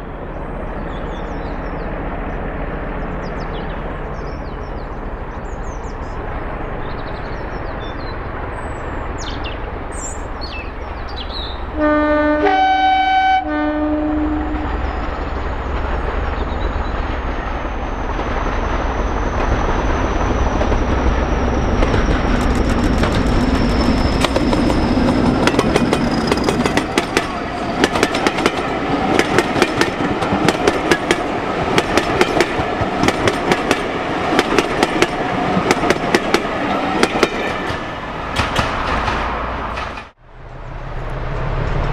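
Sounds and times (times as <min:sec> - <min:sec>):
diesel locomotive engine: 0:00.0 - 0:41.9
two-tone train horn: 0:11.7 - 0:14.9
train wheels clickety-clack: 0:15.0 - 0:40.2.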